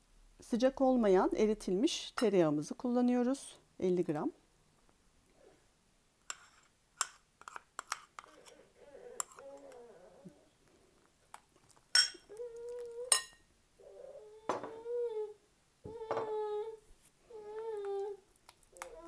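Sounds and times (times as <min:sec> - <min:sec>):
metal spoon scraping glass bowl: 0:06.3 - 0:08.6, 0:09.2 - 0:09.7
baby squealing coos: 0:13.8 - 0:18.2.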